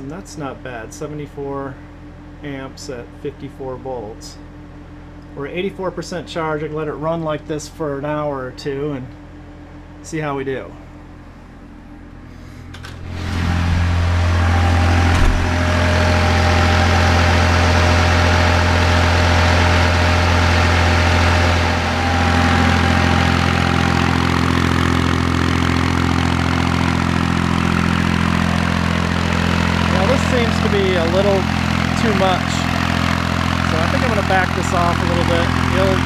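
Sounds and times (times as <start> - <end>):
electrical hum: 0.0 - 36.0
tractor diesel engine running: 10.9 - 36.0.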